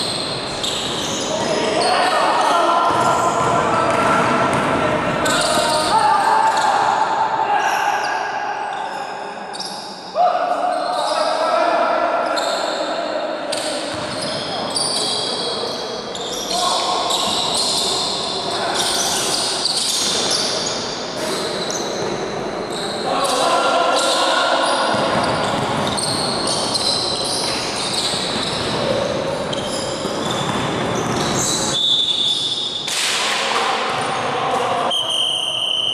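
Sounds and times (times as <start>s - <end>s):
players calling out: 0.2s - 20.4s
basketball bouncing on court: 2.9s - 5.9s, 13.9s - 14.5s, 24.9s - 28.9s, 30.0s - 31.5s.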